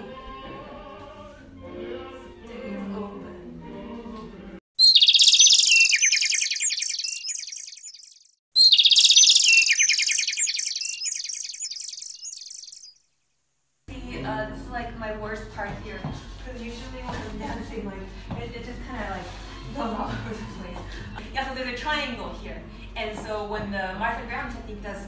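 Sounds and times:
classical music with singing: 0.0s - 4.6s
songbird song with rapid trills: 4.8s - 13.3s.

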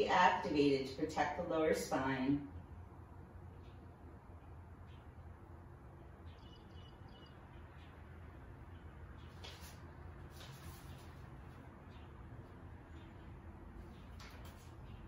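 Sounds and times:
steady low hum: 0.0s - 15.0s
faint high chirp: 6.2s - 8.0s
paper rustling: 9.3s - 11.2s.

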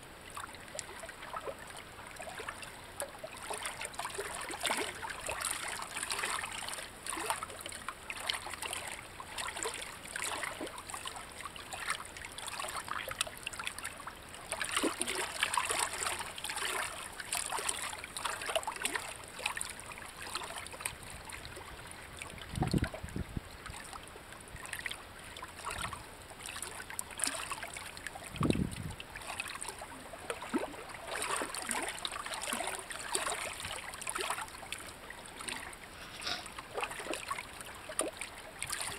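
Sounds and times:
water trickling among rocks: 0.1s - 38.9s.

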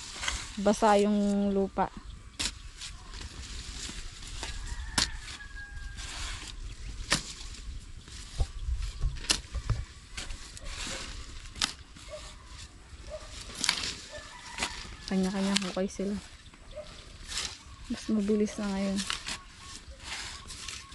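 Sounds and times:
blades scraping wet soil: 0.0s - 20.9s
shovel striking wet soil: 2.4s - 5.4s, 6.0s - 7.6s, 9.2s - 12.7s, 13.3s - 15.8s, 18.2s - 20.9s.

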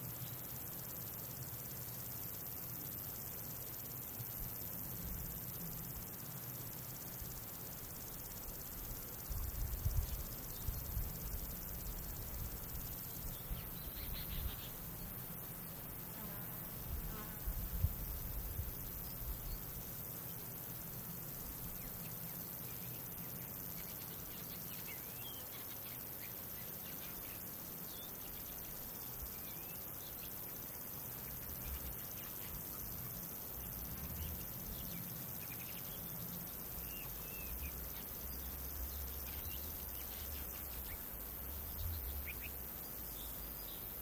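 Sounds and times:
high-pitched insect drone: 0.0s - 44.0s
soft hiss: 0.0s - 44.0s.

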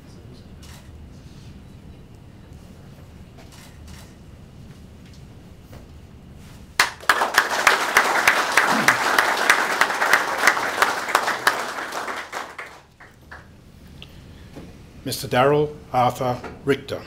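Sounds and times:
audience applauding: 6.8s - 13.5s.

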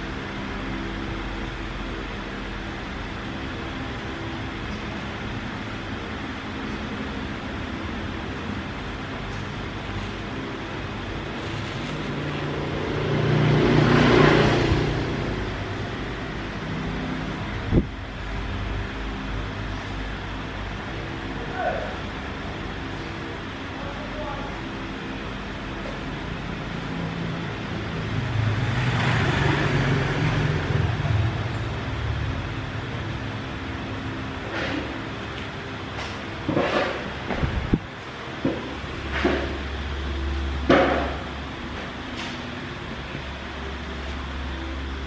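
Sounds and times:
steady low hum: 0.0s - 45.0s
motor vehicle passing: 11.4s - 17.9s, 27.9s - 32.7s.

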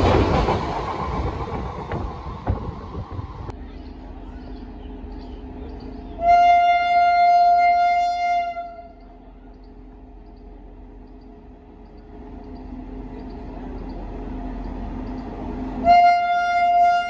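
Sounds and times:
train wheels clattering: 0.0s - 6.2s
train horn blast: 6.1s - 9.0s, 15.8s - 17.0s.

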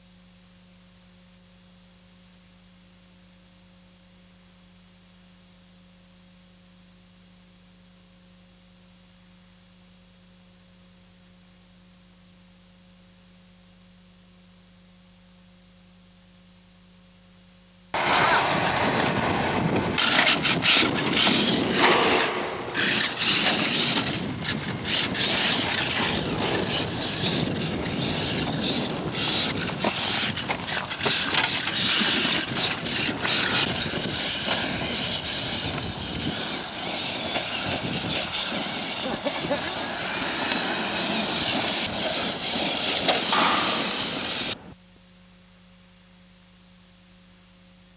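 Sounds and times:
faint steady hum: 0.0s - 47.9s
rc truck electric motors: 18.0s - 44.6s
tyres churning dirt and gravel: 18.0s - 44.6s.

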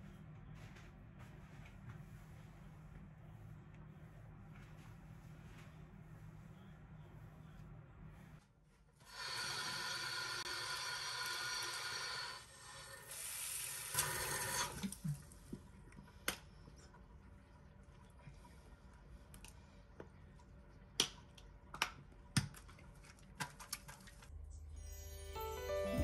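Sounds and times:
water running from a tap: 9.1s - 15.0s.

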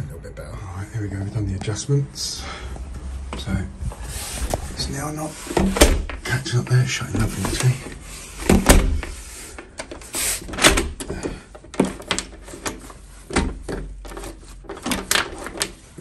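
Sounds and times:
door lock clicks and clunks: 8.4s - 13.9s.

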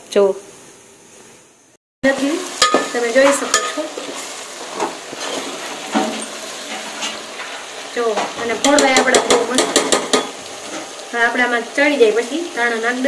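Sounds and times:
vegetables sizzling: 0.5s - 13.0s.

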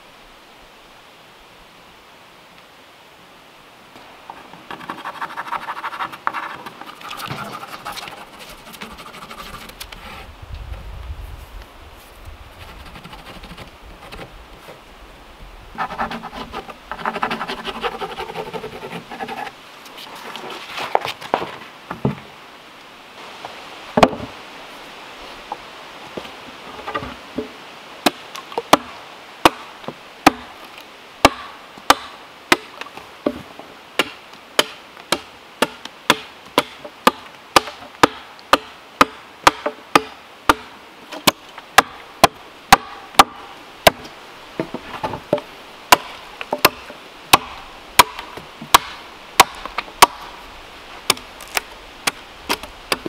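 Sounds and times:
tool striking wood: 34.0s - 44.0s, 44.6s - 50.3s.

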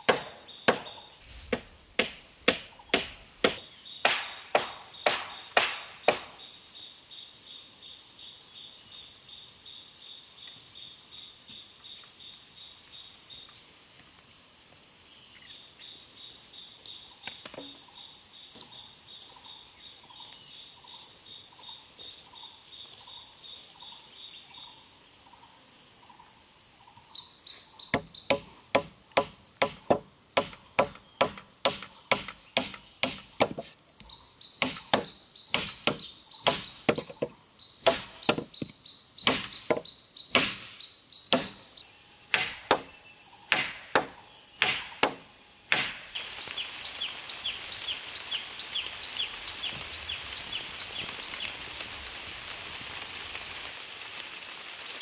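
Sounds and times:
hammer driving a nail into wood: 0.0s - 0.9s, 1.5s - 6.4s, 28.0s - 33.7s, 34.6s - 41.6s, 42.3s - 42.9s, 43.5s - 46.1s
insects chirring: 0.0s - 55.0s
pulsed cricket chirp: 0.0s - 55.0s.

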